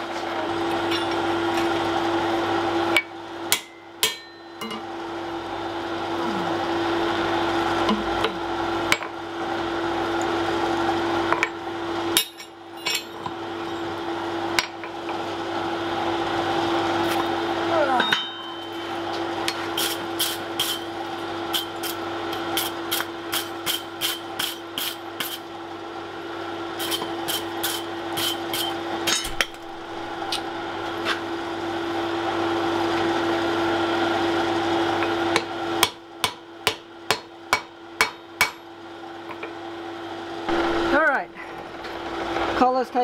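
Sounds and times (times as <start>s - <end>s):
steady hum: 0.0s - 33.0s, 39.4s - 43.0s
hammer striking iron on anvil: 3.0s - 4.9s, 12.2s - 13.1s, 18.0s - 20.8s, 27.7s - 29.6s, 35.3s - 38.7s.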